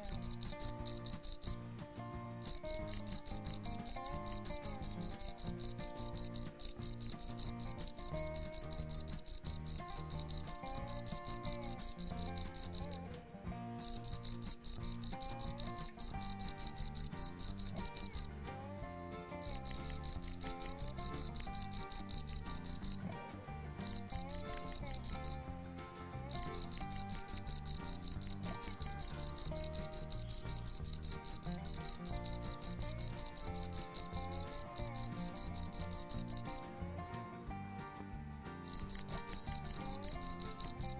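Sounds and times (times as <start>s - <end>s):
cricket chirping trill: 0.0s - 40.9s.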